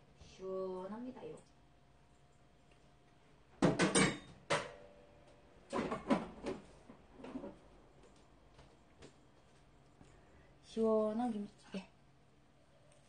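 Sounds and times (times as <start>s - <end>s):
dishes and spoon clattering: 3.6s - 4.7s.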